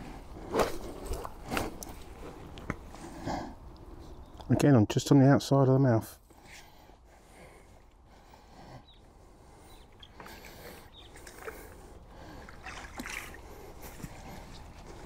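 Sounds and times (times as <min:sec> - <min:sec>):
water splashing: 0:10.1 - 0:13.8.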